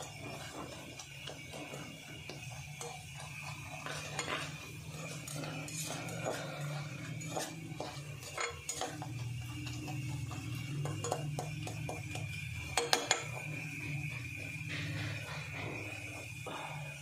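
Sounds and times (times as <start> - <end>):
spoon scraping a metal pan: 0.0 - 16.2
frying in oil: 0.0 - 17.0
steady low hum: 0.0 - 17.0
spoon clinking on metal: 2.6 - 13.7.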